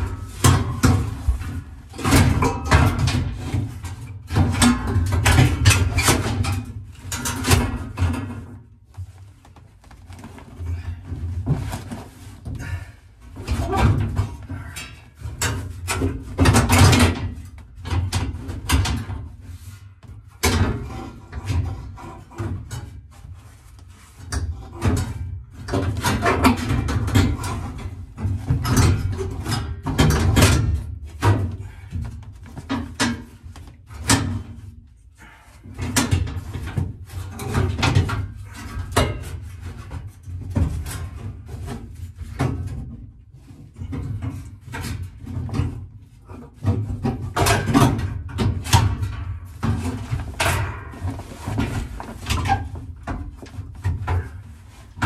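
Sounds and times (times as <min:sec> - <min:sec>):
knocks and scrapes of car panels: 0:00.0 - 0:14.6, 0:35.8 - 0:55.0.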